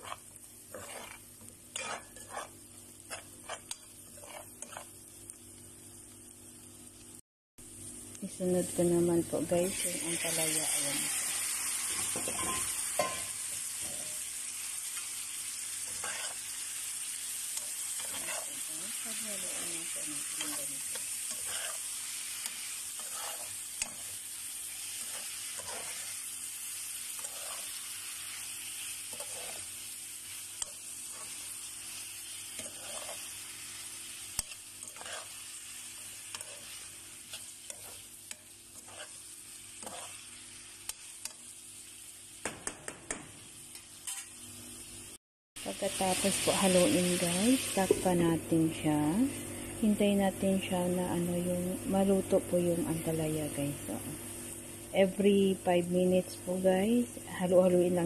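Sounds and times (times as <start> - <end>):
spatula scraping a pan: 0.0 - 5.0, 14.9 - 41.4
vegetables sizzling in a pan: 0.0 - 58.0.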